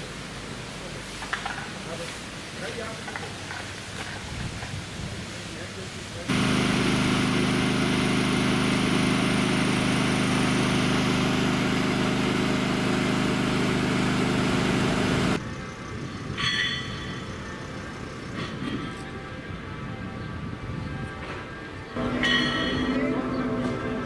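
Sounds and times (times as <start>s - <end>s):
outdoor background: 0.0s - 24.0s
engine idling: 6.3s - 15.4s.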